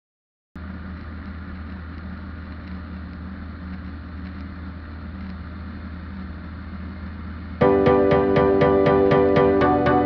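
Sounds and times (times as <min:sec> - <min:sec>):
ultralight aircraft engine droning: 0:00.6 - 0:10.0.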